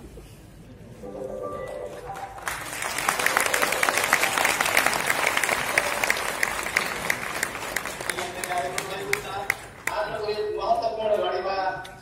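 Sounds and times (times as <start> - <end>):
audience applauding: 1.7 - 10.1.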